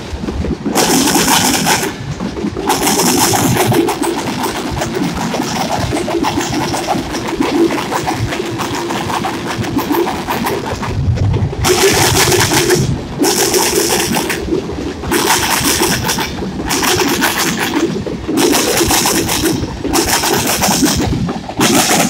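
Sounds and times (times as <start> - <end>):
train wheels rumbling on rail: 0.0 - 22.0.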